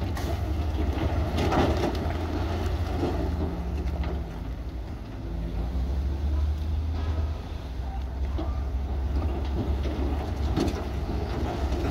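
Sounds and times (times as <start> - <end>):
diesel engine rumbling: 0.0 - 11.9.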